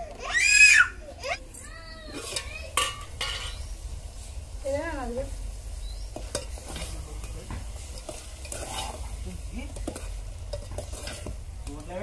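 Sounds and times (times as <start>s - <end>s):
curry sizzling: 0.0s - 12.0s
spoon scraping metal pot: 6.2s - 9.1s, 9.8s - 11.4s.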